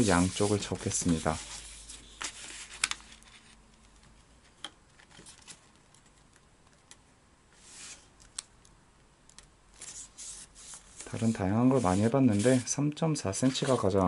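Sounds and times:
paper rustling: 0.0 - 6.4, 9.8 - 12.7, 13.4 - 14.0.

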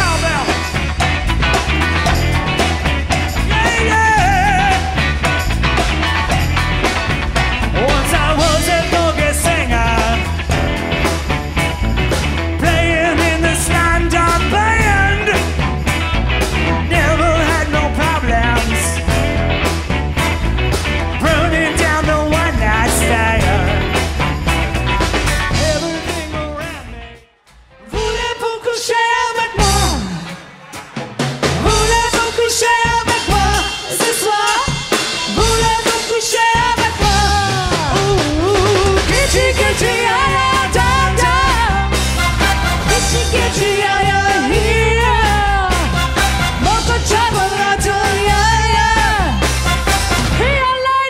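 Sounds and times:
live rock band playing: 0.0 - 51.0
lead vocal singing: 3.4 - 5.2, 7.6 - 10.5, 12.6 - 15.6, 21.2 - 24.2, 27.7 - 30.9, 31.5 - 49.6.

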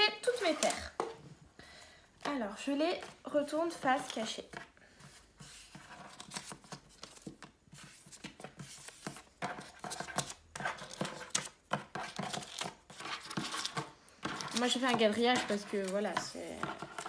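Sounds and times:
paper rustling: 3.7 - 17.0.

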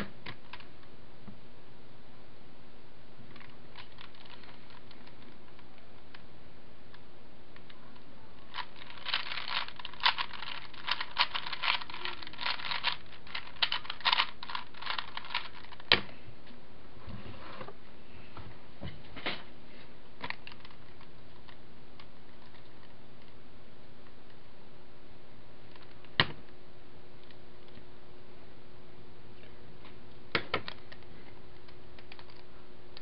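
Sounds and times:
puzzle cube plastic clicks: 8.5 - 16.0.

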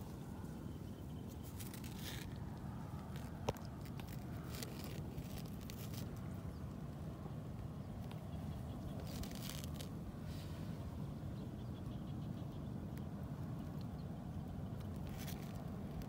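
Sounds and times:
rustling and scraping on rocks: 0.0 - 6.4, 8.0 - 10.6, 14.8 - 16.0.

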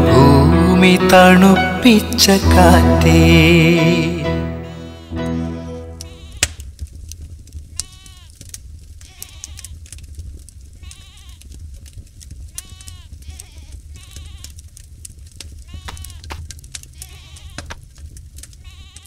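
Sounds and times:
song: 0.0 - 6.2
goats bleating: 4.6 - 6.5, 7.8 - 8.4, 9.0 - 9.8, 10.8 - 11.5, 12.6 - 14.6, 15.6 - 17.8, 18.6 - 19.0.

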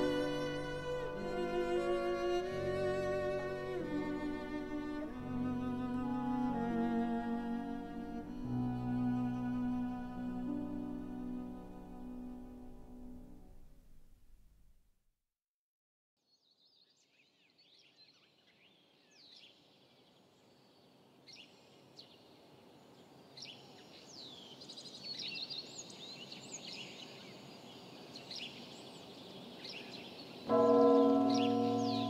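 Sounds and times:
songbirds chirping: 16.3 - 32.0
church bell ringing: 30.5 - 32.0.

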